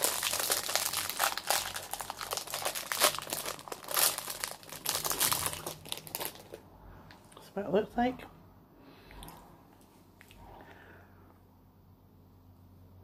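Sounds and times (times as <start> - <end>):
wrapper crinkling: 0.0 - 6.7.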